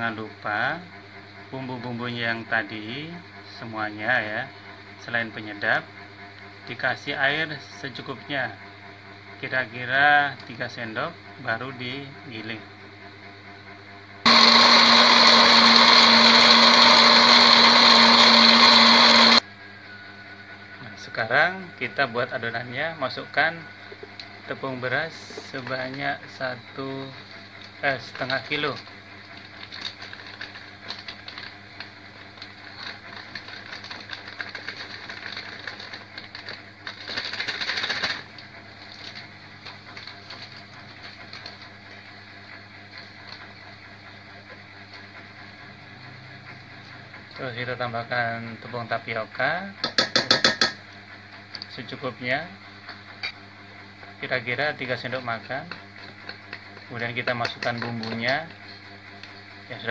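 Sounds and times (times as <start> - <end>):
blender motor whirring: 14.2 - 19.4, 25.0 - 41.6
plastic bag crinkling: 29.4 - 41.6.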